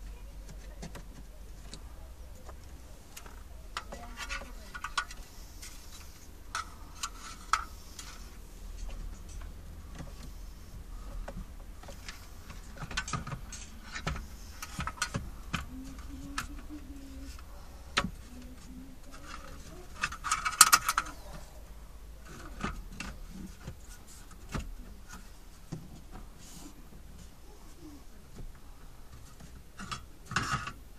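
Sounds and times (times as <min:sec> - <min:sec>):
plastic clicks and rattles: 0:00.4 - 0:10.3, 0:11.1 - 0:21.5.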